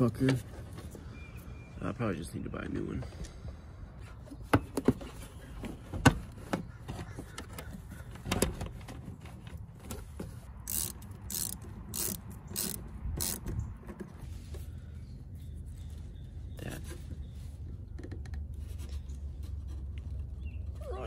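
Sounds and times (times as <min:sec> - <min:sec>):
ratchet tool tightening clamp: 0:10.7 - 0:13.5.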